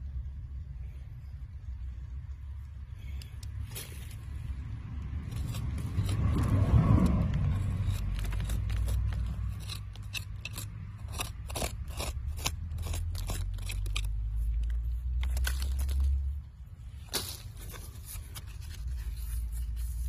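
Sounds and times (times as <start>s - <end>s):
rustle: 3.0s - 4.5s
hand tool scraping sandy soil: 5.2s - 16.0s.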